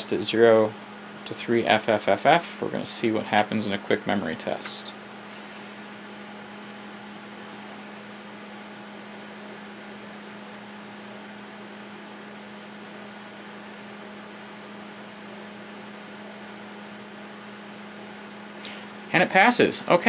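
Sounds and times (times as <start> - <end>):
computer low hum: 0.0 - 20.0
cooling fan hiss: 0.0 - 20.0.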